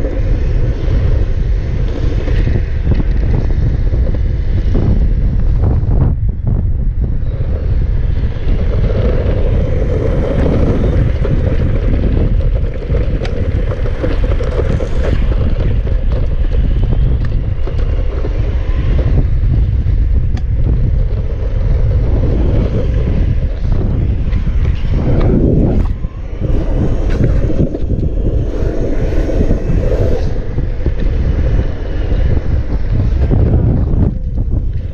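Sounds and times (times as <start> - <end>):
wind buffeting microphone: 0.0 - 34.9.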